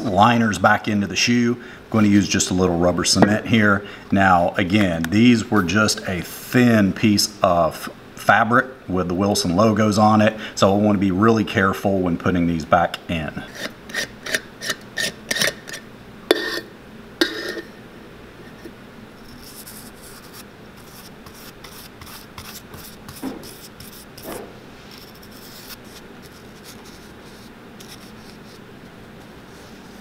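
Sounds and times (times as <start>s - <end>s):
brush rubbing cement on fabric: 19.3s - 28.6s.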